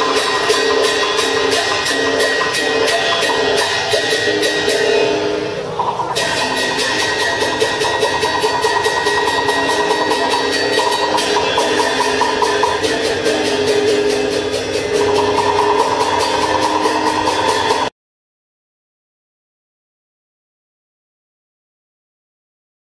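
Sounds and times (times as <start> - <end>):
fast percussion beat: 0.0 - 17.9
held melodic instrument lines: 0.0 - 17.9.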